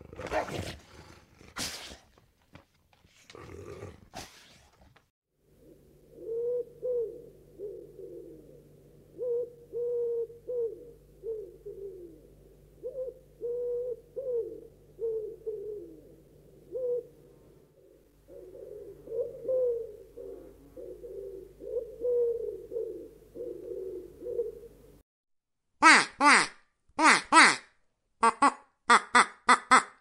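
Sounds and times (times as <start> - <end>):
owl hooting: 5.6 - 17.2, 17.8 - 25.0.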